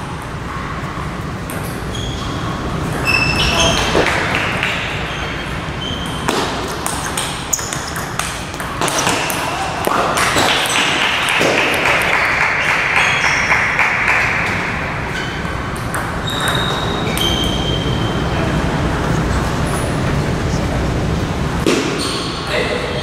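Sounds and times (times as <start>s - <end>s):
hall noise: 0.0s - 23.0s
short high squeaks: 1.9s - 4.0s, 5.0s - 6.3s, 16.2s - 18.1s
table tennis balls clicking: 2.8s - 14.6s, 15.2s - 17.7s.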